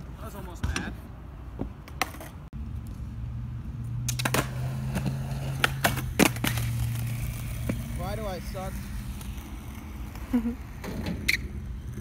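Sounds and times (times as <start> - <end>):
skateboard rolling on concrete: 0.2 - 12.0
skateboard clacking on ground: 1.6 - 2.4, 4.1 - 8.1.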